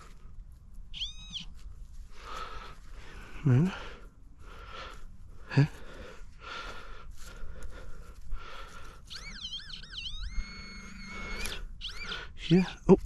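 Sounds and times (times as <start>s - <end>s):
metal detector pinpointer tone: 9.1s - 12.6s.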